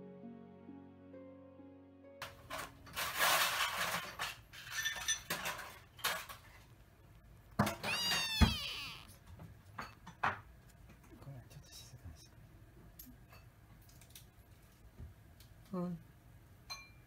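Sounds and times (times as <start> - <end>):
kitten meowing: 7.7 - 9.2.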